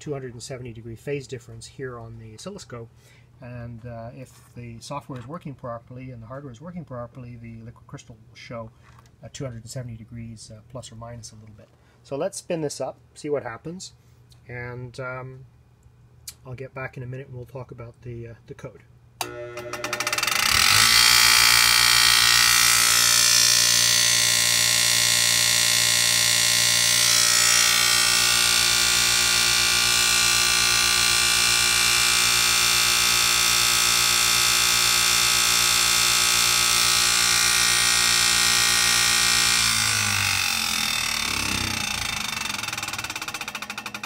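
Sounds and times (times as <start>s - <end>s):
bench grinder motor humming: 19.2s - 44.0s.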